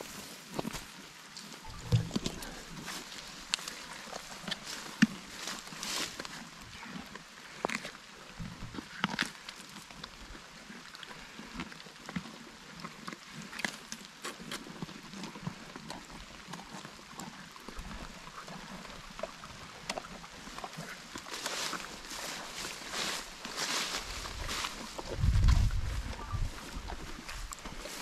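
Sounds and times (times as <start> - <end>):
donkeys chewing watermelon: 0.0 - 28.0.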